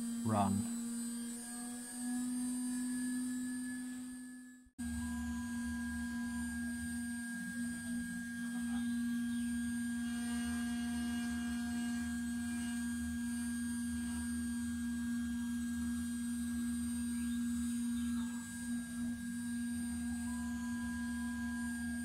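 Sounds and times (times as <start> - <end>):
router spindle high hum: 0.0 - 22.0
end mill cutting aluminium: 4.9 - 22.0.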